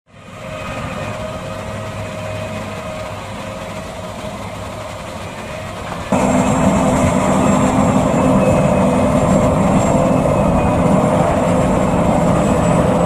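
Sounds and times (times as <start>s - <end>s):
diesel engine running: 0.1s - 13.0s.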